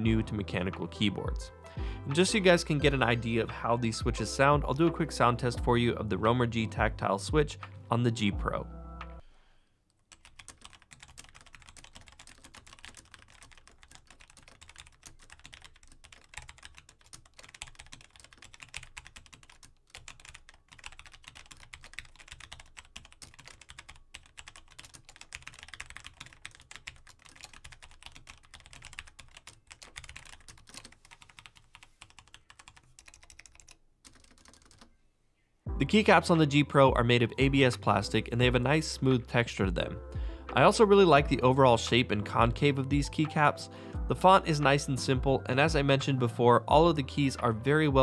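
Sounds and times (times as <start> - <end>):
mechanical keyboard typing: 10.1 - 34.9.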